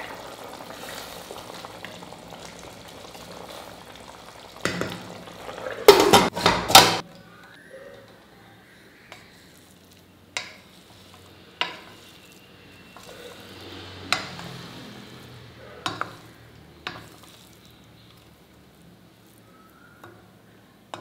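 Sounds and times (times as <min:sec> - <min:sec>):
rice rustling: 0:00.0 - 0:06.8, 0:09.2 - 0:20.6.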